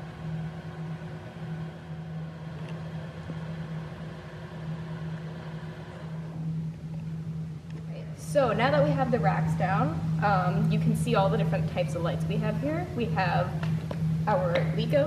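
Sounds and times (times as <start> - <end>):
motorized hoist humming: 0.0 - 15.0.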